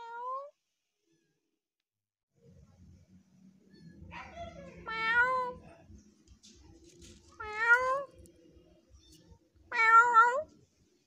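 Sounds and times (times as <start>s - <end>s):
kitten meowing: 7.4s - 8.1s, 9.7s - 10.5s.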